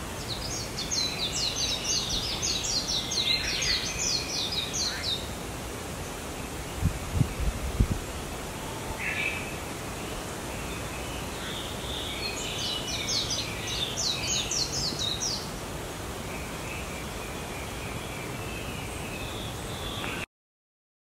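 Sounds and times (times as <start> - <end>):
steady outdoor hiss: 0.0 - 20.3
bird singing: 0.2 - 5.3, 8.7 - 15.5.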